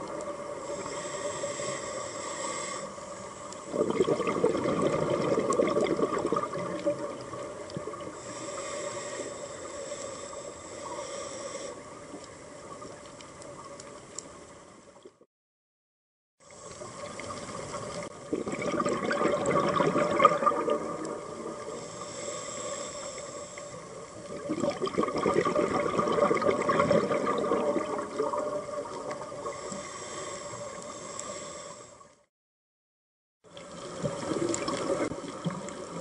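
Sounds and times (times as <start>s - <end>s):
diver breathing through regulator: 0.6s - 3.5s, 8.2s - 12.1s, 21.6s - 24.0s, 29.4s - 32.1s.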